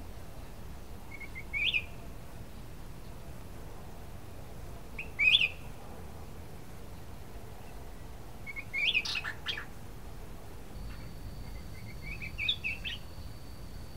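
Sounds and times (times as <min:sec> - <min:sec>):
bulbul singing: 0:01.1 - 0:02.0, 0:05.0 - 0:05.7, 0:08.5 - 0:09.7, 0:10.8 - 0:13.5.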